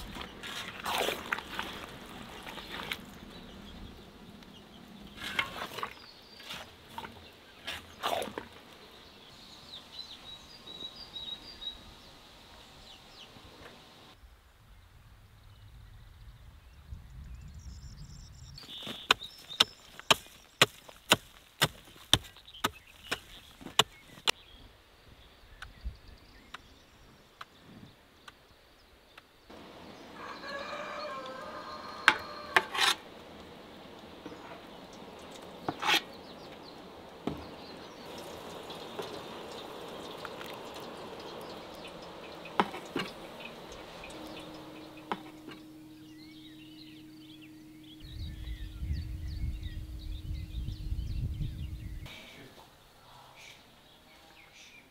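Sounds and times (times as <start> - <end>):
hoe chopping dry soil: 18.7 - 24.3, 42.5 - 45.7.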